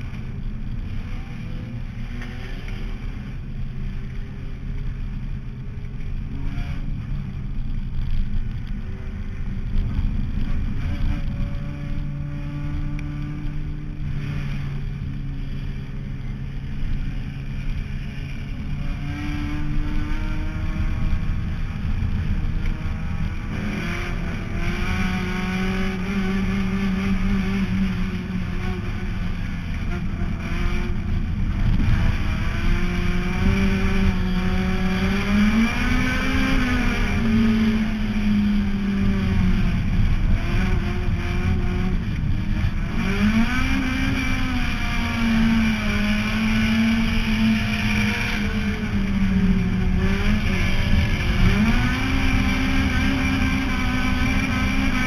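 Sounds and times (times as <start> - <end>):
heavy low rumble: 0.0 - 26.0, 27.2 - 55.0
race car engine running hard: 0.0 - 55.0.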